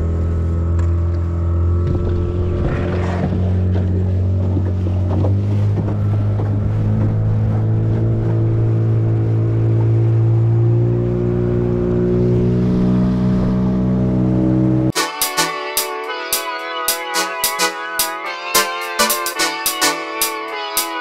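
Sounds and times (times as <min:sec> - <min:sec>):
boat engine running: 0:00.0 - 0:15.1.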